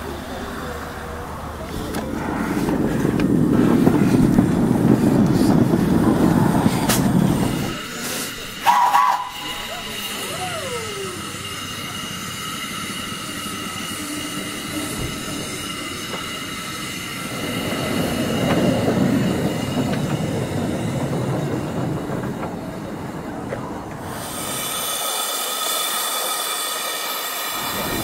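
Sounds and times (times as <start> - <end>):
locomotive rumble: 0.0 - 28.0
wheels squealing on track: 7.6 - 11.9.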